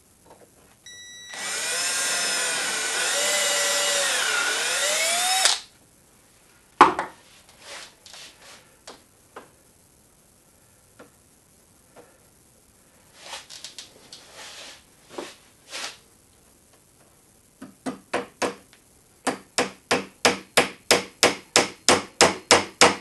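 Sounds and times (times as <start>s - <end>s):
cordless drill boring into wood: 1.3s - 5.7s.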